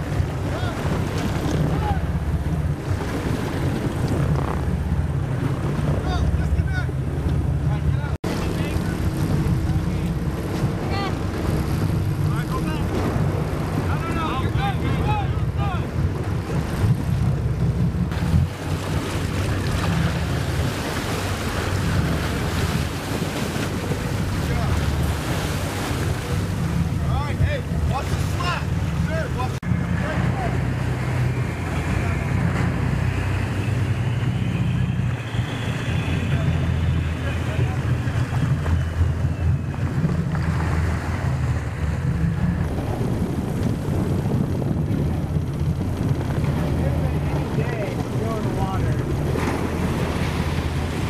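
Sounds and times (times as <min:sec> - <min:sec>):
boat engine running: 0:00.0 - 0:51.0
water churning: 0:00.0 - 0:51.0
wind buffeting microphone: 0:00.0 - 0:51.0
vehicle engines droning: 0:28.7 - 0:44.1.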